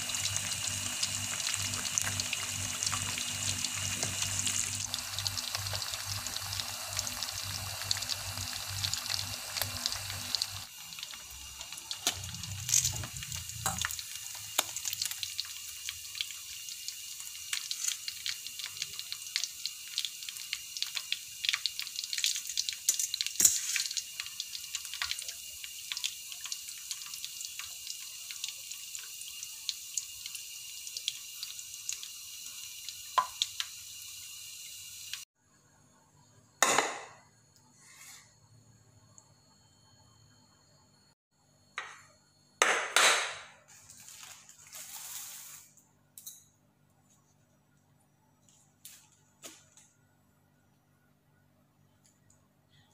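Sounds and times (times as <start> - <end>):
fish deep-frying in oil: 0.0 - 35.3.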